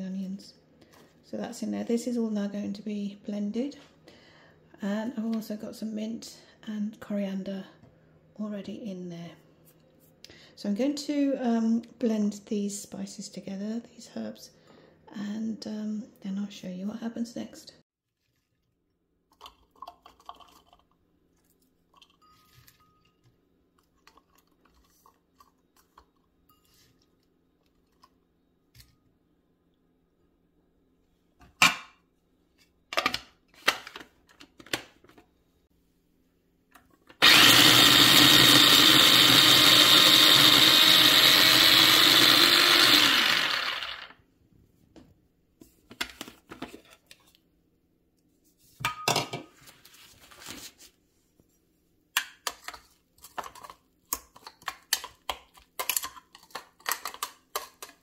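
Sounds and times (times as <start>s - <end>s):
electric food chopper running: 37.2s - 44.2s.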